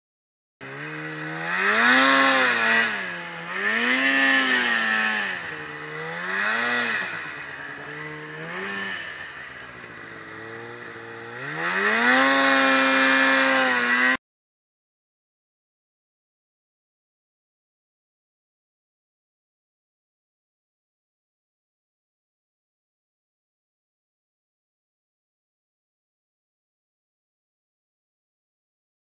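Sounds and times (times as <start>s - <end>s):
snowmobile engine revving: 0.6s - 14.2s.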